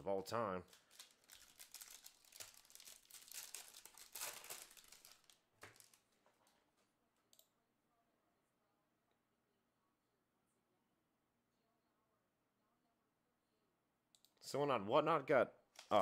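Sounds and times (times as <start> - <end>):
wrapper crinkling and tearing: 0.6 - 6.5.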